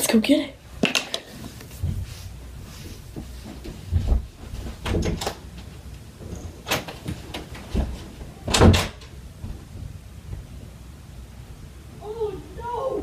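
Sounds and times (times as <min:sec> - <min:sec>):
door opening and shutting: 0:04.0 - 0:05.4, 0:06.2 - 0:09.2.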